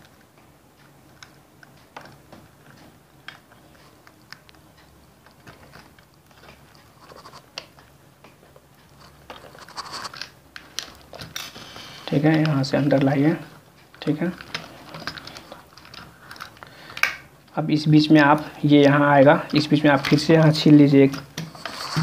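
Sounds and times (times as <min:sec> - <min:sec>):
wire scraping screw terminals: 0:08.9 - 0:12.4, 0:19.4 - 0:22.0.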